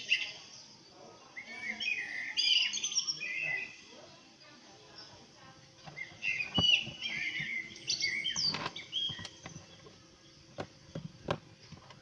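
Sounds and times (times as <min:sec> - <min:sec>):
birds chirping from phone speaker: 0:05.8 - 0:11.8.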